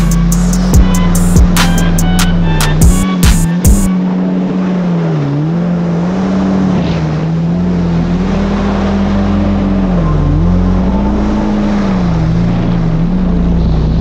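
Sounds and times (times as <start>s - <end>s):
jet ski engine running: 0.0s - 14.0s
rushing water: 0.0s - 14.0s
wind: 3.5s - 14.0s.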